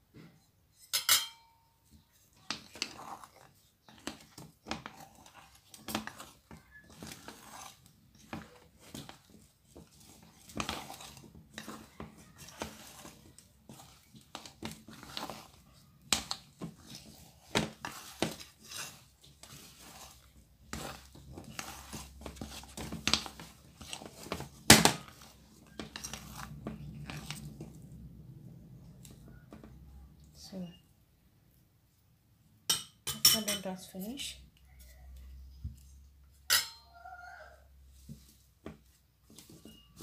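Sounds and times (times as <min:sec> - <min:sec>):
dough squishing: 0:01.9 - 0:30.6, 0:37.4 - 0:40.0.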